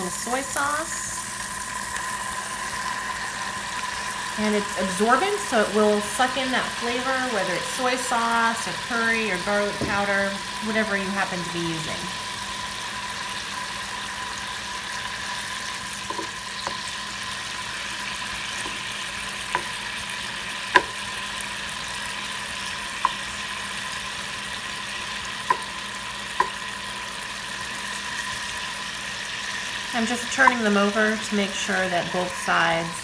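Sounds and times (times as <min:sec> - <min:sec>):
thin steady whine: 0:00.0 - 0:33.0
tofu sizzling in a frying pan: 0:00.0 - 0:33.0
wooden spoon knocking on pan: 0:09.7 - 0:10.2, 0:16.1 - 0:16.8, 0:19.5 - 0:19.8, 0:20.7 - 0:21.0, 0:25.5 - 0:25.7, 0:26.4 - 0:26.6.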